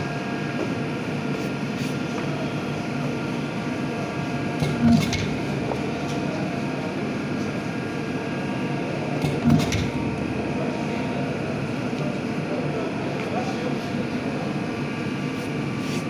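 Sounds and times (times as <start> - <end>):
steady machine hum: 0.0 - 16.0
press head thumping: 4.6 - 6.0, 9.2 - 11.3.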